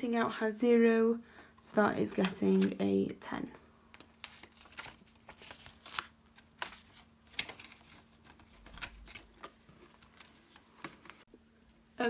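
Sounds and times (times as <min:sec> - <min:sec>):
banknotes and plastic crinkling: 0:03.9 - 0:11.3.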